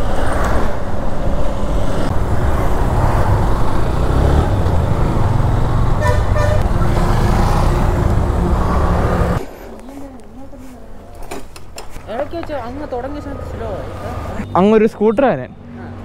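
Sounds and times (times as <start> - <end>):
vehicle horn honking: 6.0 - 6.8.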